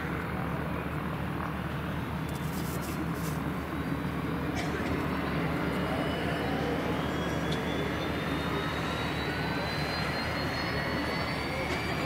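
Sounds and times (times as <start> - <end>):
turboprop engine and propeller: 0.0 - 12.0.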